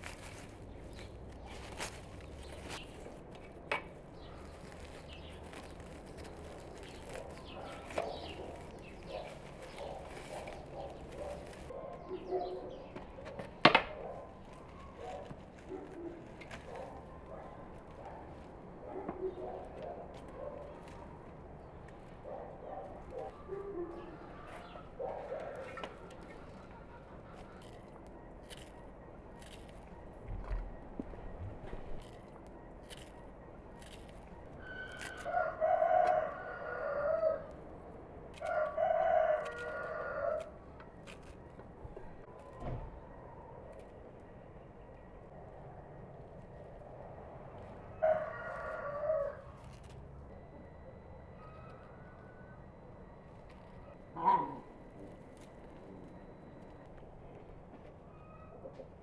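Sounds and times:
stems snapping: 0.0s - 11.7s, 27.4s - 29.9s, 32.0s - 35.3s, 38.3s - 41.4s
leaves rustling: 0.0s - 11.8s, 27.3s - 29.8s, 32.0s - 36.1s
small birds chirping: 0.0s - 13.4s
dove cooing: 53.8s - 56.7s.

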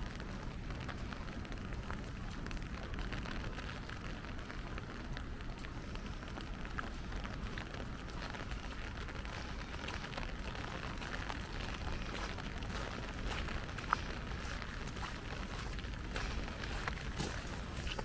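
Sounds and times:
light rain falling: 0.0s - 18.0s.

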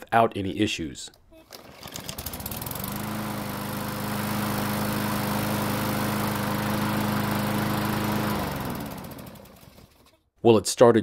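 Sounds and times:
lawn mower engine starting: 1.4s - 10.2s.

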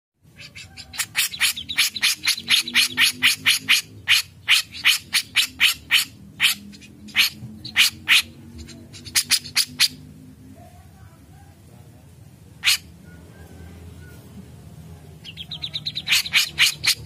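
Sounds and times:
bird calling with harsh notes: 0.2s - 10.2s, 12.6s - 14.3s, 15.2s - 17.0s.

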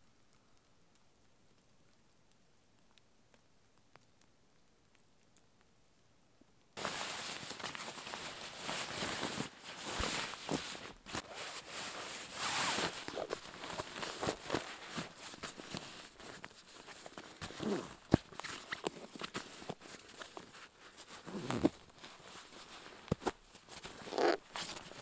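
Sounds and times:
fabric rustling and crinkling: 6.8s - 25.0s.

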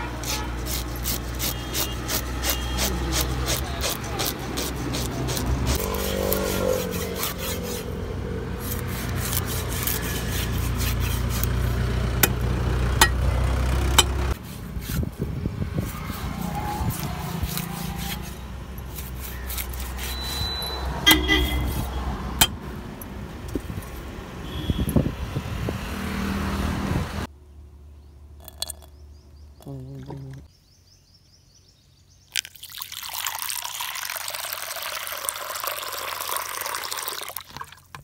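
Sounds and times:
fish scaler scraping fish skin: 0.0s - 7.9s, 8.6s - 12.4s, 15.8s - 20.6s.

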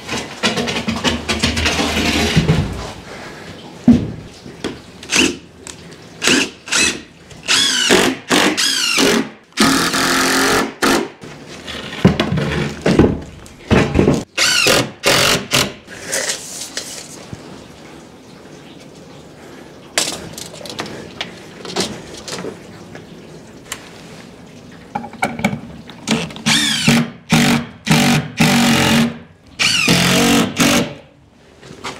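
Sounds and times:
power drill whining: 6.4s - 10.6s, 14.4s - 14.8s, 26.5s - 29.0s, 29.6s - 30.8s.

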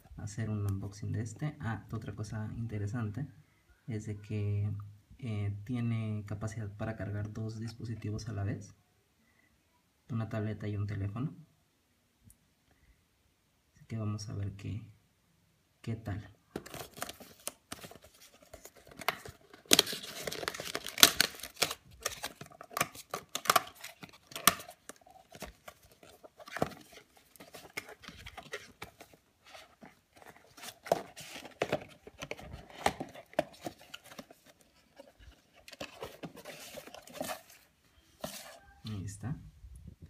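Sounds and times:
cardboard rustling and scraping: 16.6s - 38.7s
cardboard box tearing: 18.8s - 34.6s.

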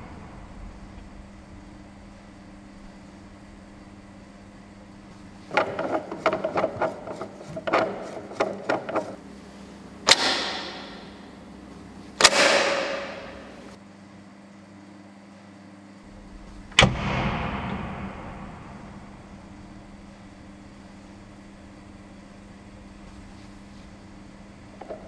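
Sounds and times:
hiss of rushing air: 0.0s - 3.8s
rattling clicks and knocks: 5.4s - 9.3s
sharp bangs: 12.2s - 13.8s, 16.1s - 21.3s.

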